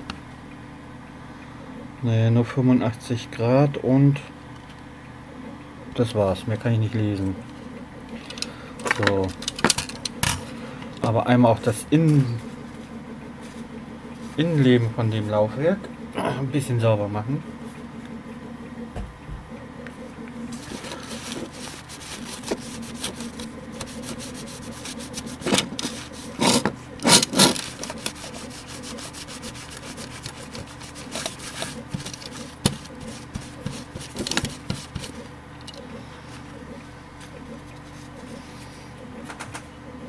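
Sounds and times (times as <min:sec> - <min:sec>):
steady low hum: 0:00.0 - 0:40.0
cloth wiping metal: 0:20.5 - 0:35.3.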